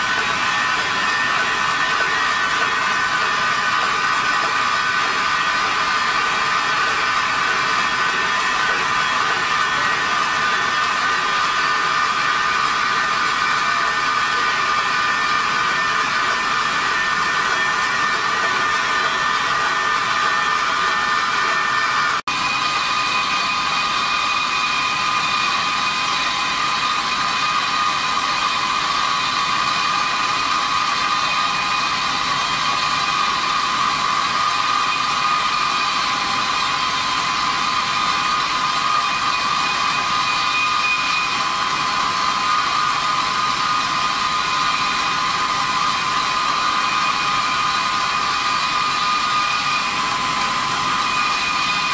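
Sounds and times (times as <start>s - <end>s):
wire saw whining: 0.0s - 51.9s.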